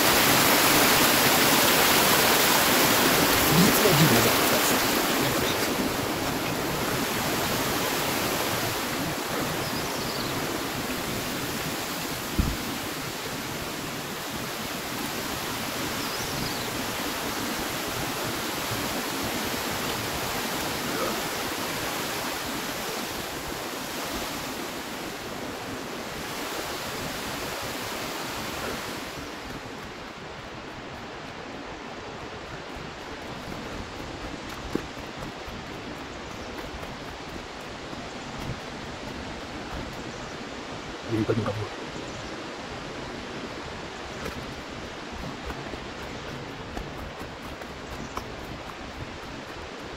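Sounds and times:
mountain stream rushing: 0.0 - 49.9.

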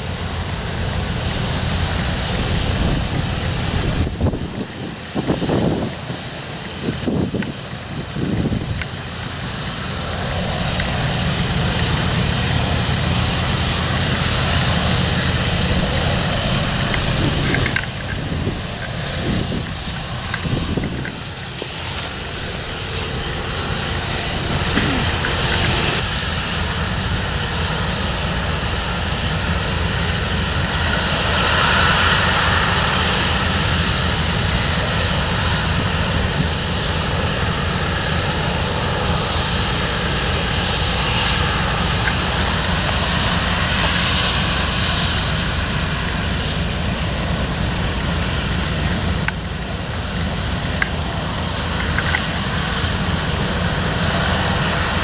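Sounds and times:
combine harvester droning: 0.0 - 55.0.

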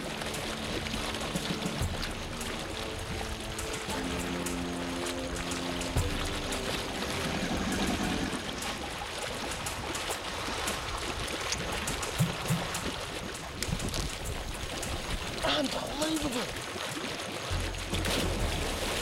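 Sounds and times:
rushing water: 0.0 - 19.0
crocodiles thrashing in water: 6.0 - 19.0.

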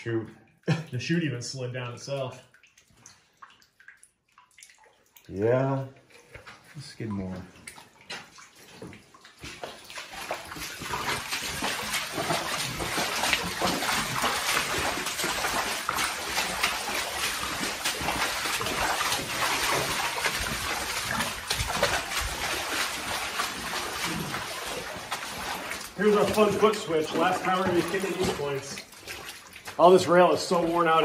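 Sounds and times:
boots sloshing through water: 6.0 - 31.0.

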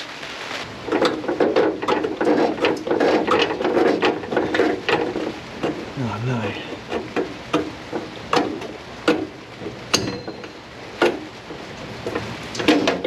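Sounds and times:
hand tool cutting metal pipe: 0.9 - 5.8.

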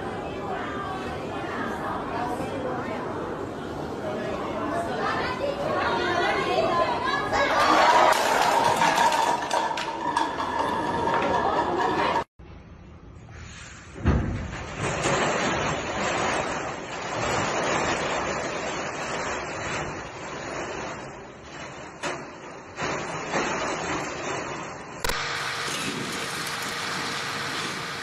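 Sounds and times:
thump: 14.0 - 14.6.

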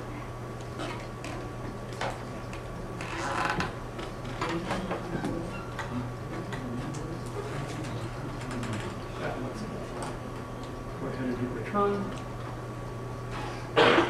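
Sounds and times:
low electrical hum: 0.0 - 14.0.

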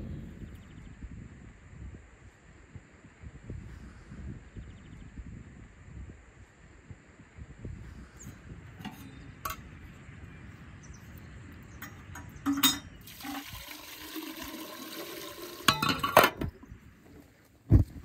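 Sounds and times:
water pouring and splashing: 13.0 - 16.6.

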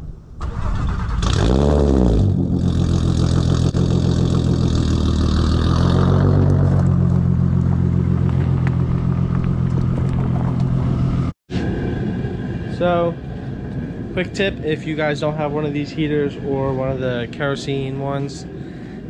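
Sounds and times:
car engine revving and idling: 1.1 - 11.3.

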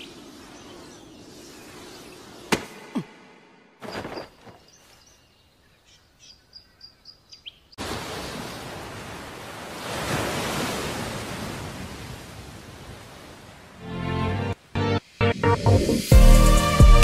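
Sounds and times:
rushing water sound effect: 7.8 - 13.9.

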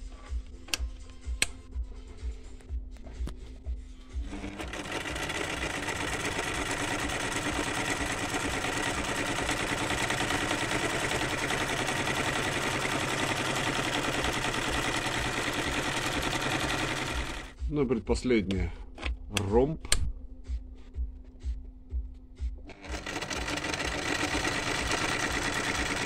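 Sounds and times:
sewing machine stitching: 4.2 - 17.6, 22.7 - 26.0.

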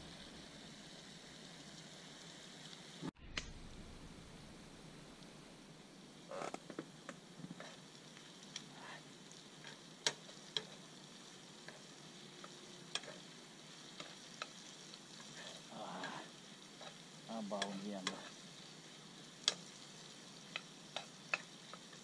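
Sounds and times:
food frying with faint sizzle: 0.0 - 22.0
utensil scraping against pot: 12.4 - 13.3, 15.2 - 17.0, 17.6 - 18.4.

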